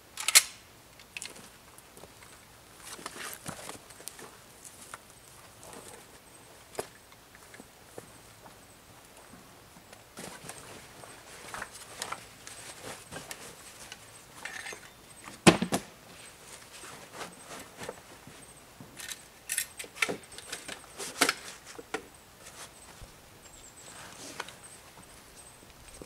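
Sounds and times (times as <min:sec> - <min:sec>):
camp gear clicking and rustling: 0:01.0 - 0:26.0.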